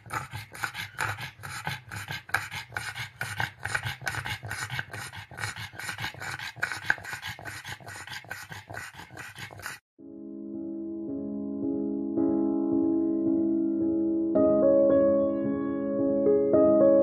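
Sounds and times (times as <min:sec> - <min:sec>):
dog panting fast: 0:00.0 - 0:09.8.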